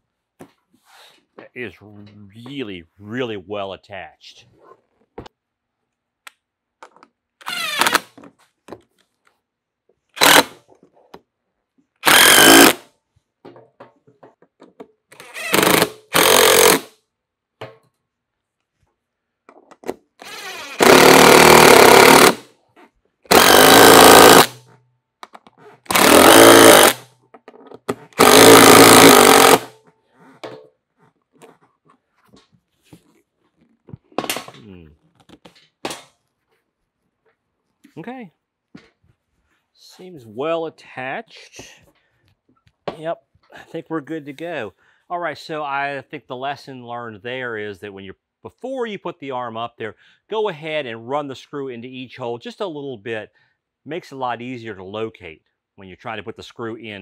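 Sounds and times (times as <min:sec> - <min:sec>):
impact driver hammering screws: 0:10.2 - 0:10.6, 0:12.0 - 0:12.8, 0:15.2 - 0:16.9, 0:20.2 - 0:22.5, 0:23.3 - 0:24.6, 0:25.9 - 0:27.1, 0:28.0 - 0:29.8.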